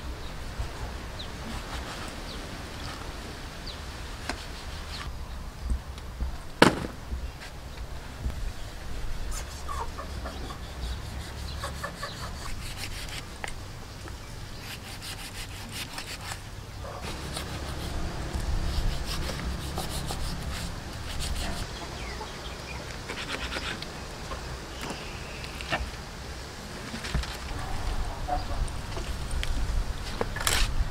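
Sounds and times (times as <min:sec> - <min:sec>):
knife cutting and scraping meat: 0:11.0 - 0:13.3, 0:14.6 - 0:16.4, 0:17.0 - 0:21.6.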